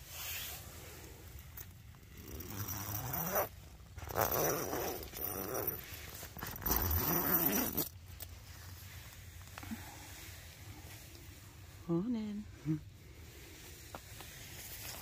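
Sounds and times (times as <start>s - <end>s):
tent zip rasping open: 0.0s - 0.6s, 2.1s - 8.0s.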